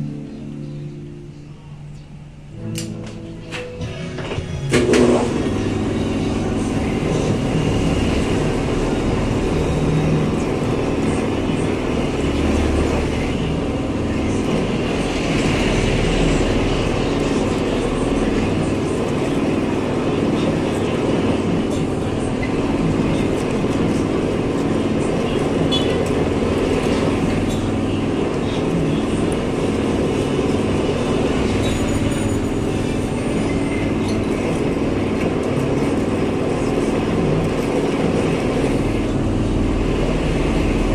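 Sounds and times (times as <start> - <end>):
low drone: 0.0 - 40.9
metal lathe running: 3.8 - 40.9.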